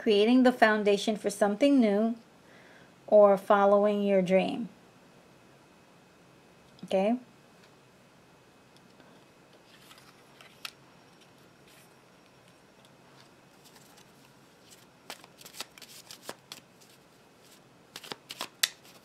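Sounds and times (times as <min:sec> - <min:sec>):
cards shuffling: 0:09.6 - 0:11.8, 0:13.2 - 0:19.0.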